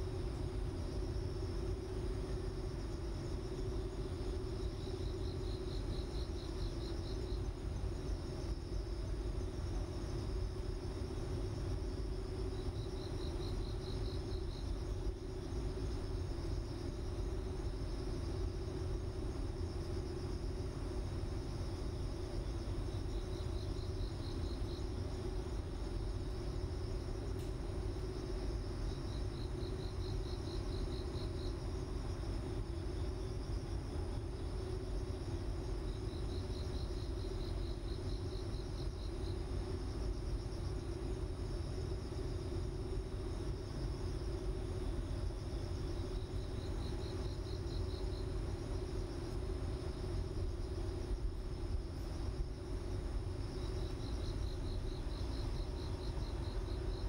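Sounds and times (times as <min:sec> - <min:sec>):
insects chirping: 0:00.0 - 0:57.0
steady low hum: 0:00.0 - 0:57.0
quick insect chirps: 0:21.4 - 0:57.0.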